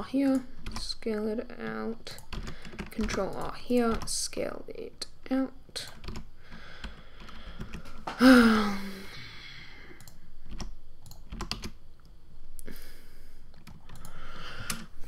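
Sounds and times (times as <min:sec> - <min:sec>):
keyboard and mouse clicks: 0:00.2 - 0:01.0, 0:02.0 - 0:04.2, 0:05.8 - 0:08.0, 0:10.0 - 0:12.1, 0:13.5 - 0:14.9
person humming: 0:08.1 - 0:09.3.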